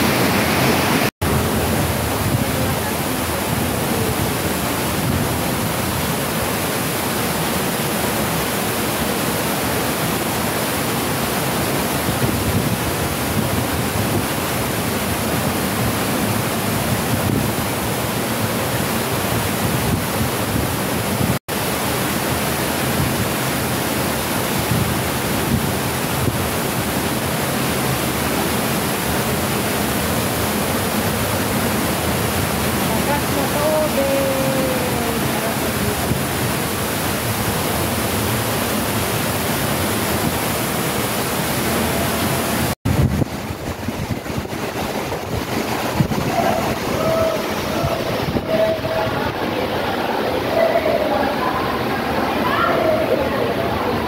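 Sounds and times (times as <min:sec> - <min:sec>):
water rushing down a wall: 0:00.0 - 0:54.0.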